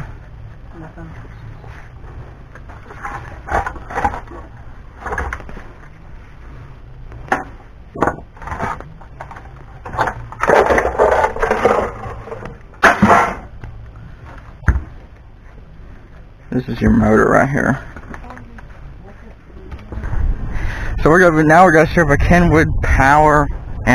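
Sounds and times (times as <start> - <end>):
scraping and rattling: 1.2 - 6.0, 7.3 - 13.6
plastic and metal parts clattering: 2.7 - 5.9, 7.3 - 13.5.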